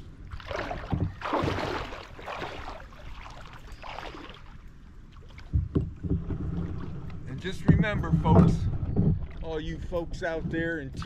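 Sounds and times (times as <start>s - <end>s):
feet splashing in shallow water: 0.0s - 5.6s.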